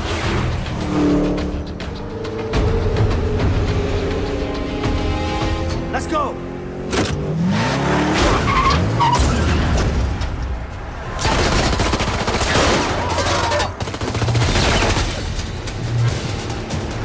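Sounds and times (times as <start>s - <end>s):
car engine revving: 0.0s - 10.0s
rapid automatic gunfire: 11.2s - 12.8s, 13.4s - 15.2s.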